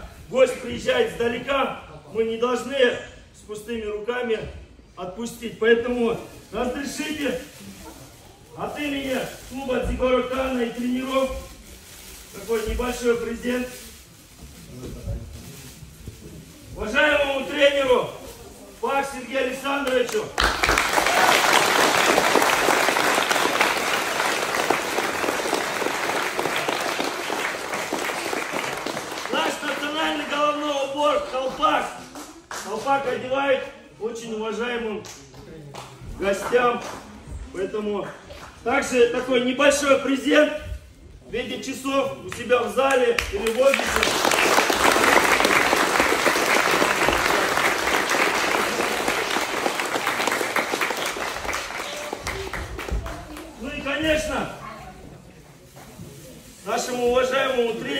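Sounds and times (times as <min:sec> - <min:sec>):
crowd applauding: 0:20.0 - 0:30.6, 0:43.2 - 0:53.6.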